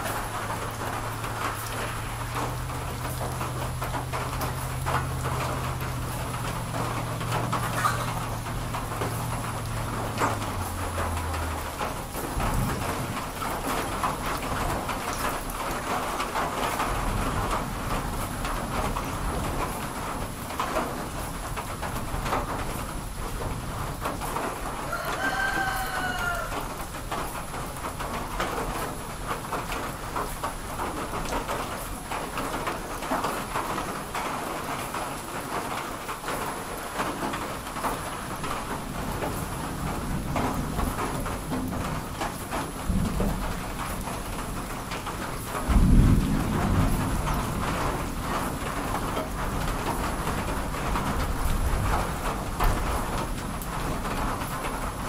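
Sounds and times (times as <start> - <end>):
rain pattering and dripping: 0.0 - 55.0
thunder rumbling: 0.0 - 55.0
rooster crowing: 24.8 - 26.8.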